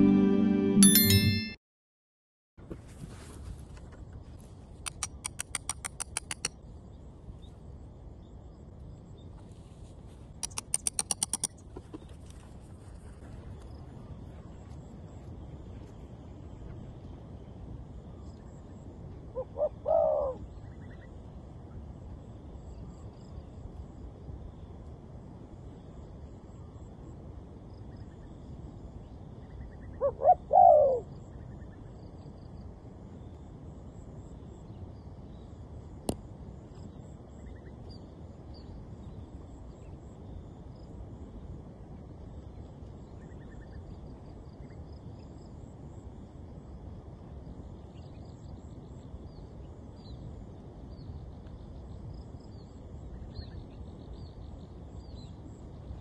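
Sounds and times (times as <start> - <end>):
sharp click: 4.9 - 6.5, 10.4 - 11.6
dove cooing: 19.3 - 20.4, 30.0 - 31.1.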